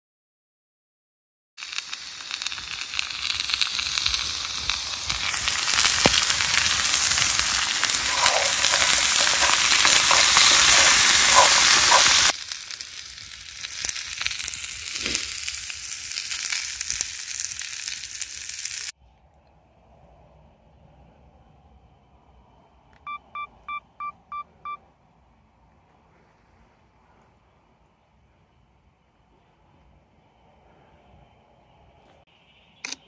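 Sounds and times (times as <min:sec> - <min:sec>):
vegetables sizzling in a frying pan: 0:01.6 - 0:19.0
crackles: 0:01.6 - 0:19.6.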